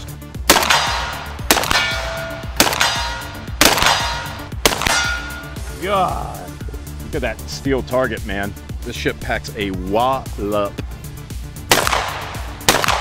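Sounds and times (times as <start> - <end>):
shotgun shots: 0.4 - 5.6, 11.7 - 13.0
steel target ringing: 0.5 - 5.7.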